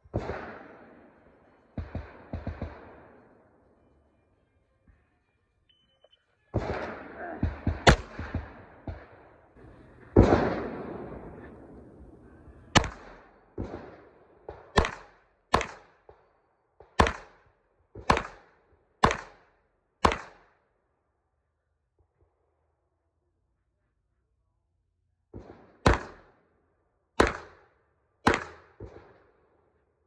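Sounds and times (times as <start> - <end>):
pistol shots: 0.0 - 3.4, 6.5 - 16.2, 16.8 - 17.4, 18.0 - 20.5, 25.4 - 26.4, 27.2 - 29.2.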